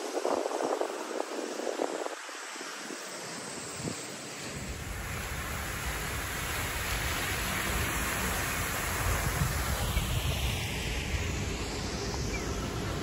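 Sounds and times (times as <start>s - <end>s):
wind rumbling on microphone: 0.0s - 13.0s
fountain water splashing: 4.5s - 13.0s.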